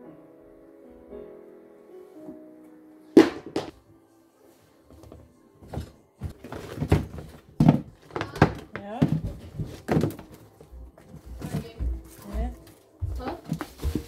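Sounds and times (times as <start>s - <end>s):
soft background music: 0.0s - 14.0s
shoes thudding: 3.2s - 3.7s, 5.0s - 14.0s.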